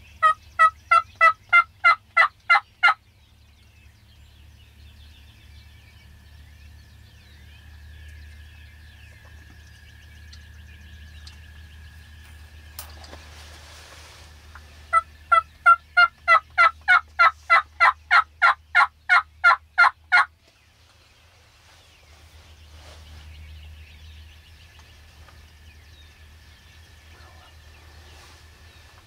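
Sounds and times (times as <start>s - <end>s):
turkey call yelps: 0.2s - 3.0s.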